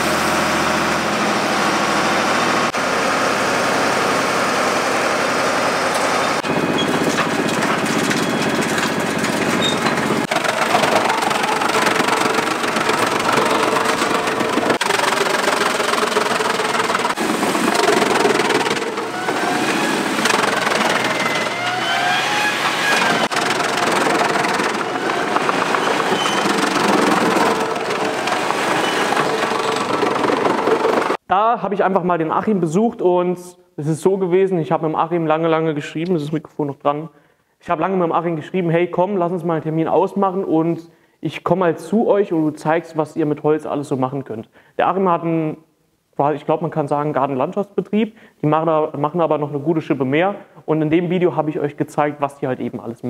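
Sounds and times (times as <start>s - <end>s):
truck tipping wood chips: 0.0s - 31.2s
wood shredder grinding wood: 0.0s - 31.2s.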